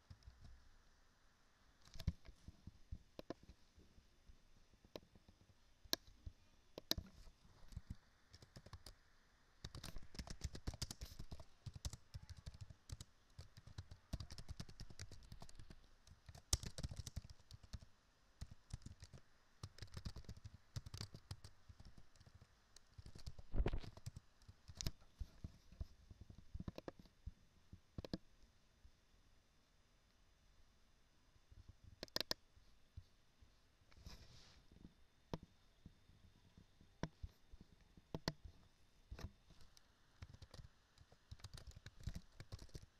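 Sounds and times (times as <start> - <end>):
computer keyboard typing: 1.8 - 2.3, 7.7 - 9.0, 9.6 - 25.0, 32.0 - 32.4, 39.6 - 42.9.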